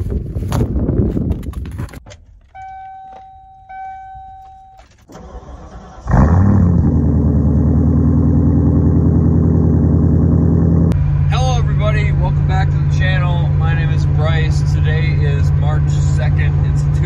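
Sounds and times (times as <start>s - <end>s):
electronic chime tones: 2.6s - 4.9s
pickup engine starting and idling: 2.6s - 17.0s.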